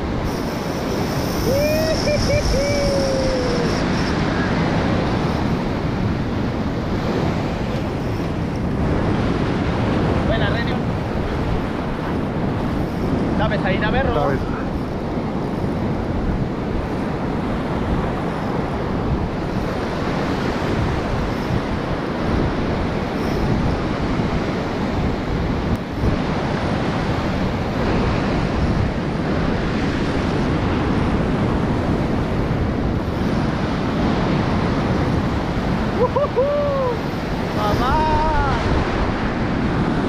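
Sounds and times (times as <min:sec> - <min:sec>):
ocean surf breaking: 0:00.0 - 0:40.0
wind on microphone: 0:00.0 - 0:40.0.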